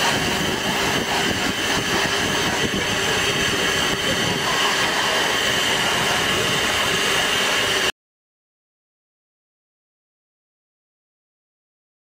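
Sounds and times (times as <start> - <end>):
steam locomotive hissing: 0.0 - 7.9.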